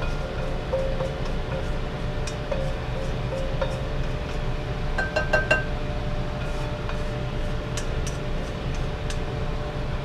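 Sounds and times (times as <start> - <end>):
spatula scraping a wok: 0.0 - 4.9, 6.2 - 9.3.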